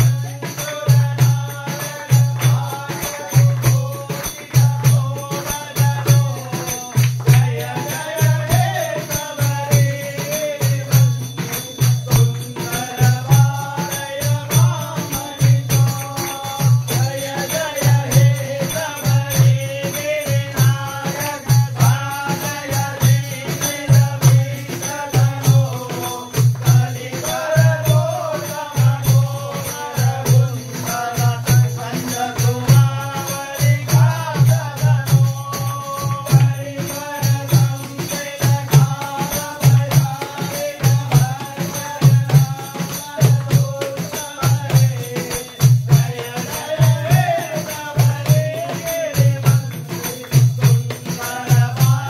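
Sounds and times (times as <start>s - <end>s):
group clapping: 0.0s - 9.6s
men singing into microphones: 0.0s - 52.0s.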